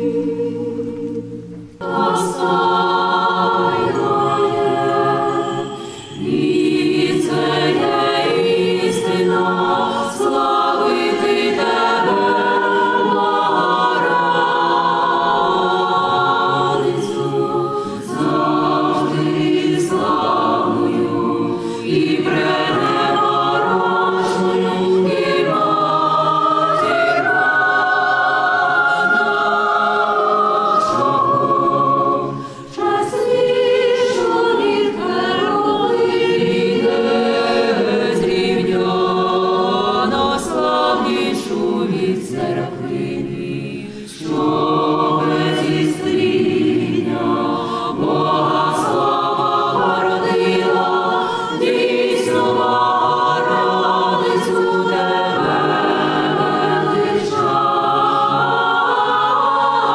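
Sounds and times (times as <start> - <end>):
choir singing a cappella: 0.0 - 59.9.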